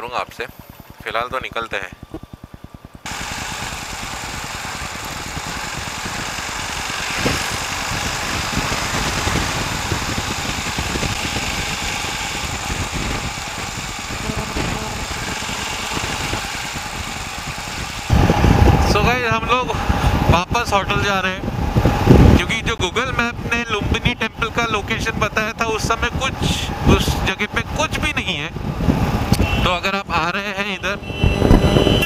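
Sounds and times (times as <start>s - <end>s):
motorcycle engine idling: 1.8s - 18.2s
motorcycle engine running on road: 2.1s - 19.0s, 31.1s - 32.0s
wind on microphone: 5.3s - 30.2s, 30.8s - 32.0s.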